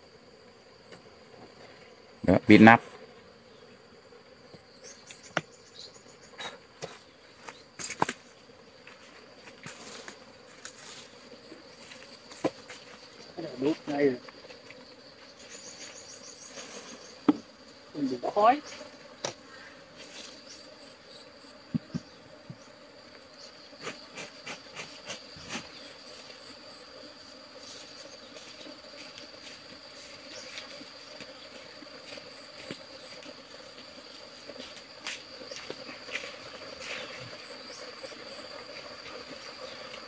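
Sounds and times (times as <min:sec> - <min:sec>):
honeybees buzzing: 0:00.0 - 0:40.0.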